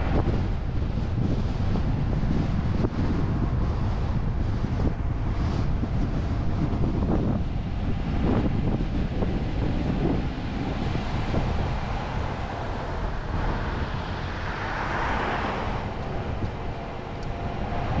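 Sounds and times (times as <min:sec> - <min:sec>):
tyre and road rumble: 0:00.0 - 0:18.0
wind buffeting microphone: 0:00.0 - 0:18.0
oncoming car passing: 0:07.7 - 0:18.0.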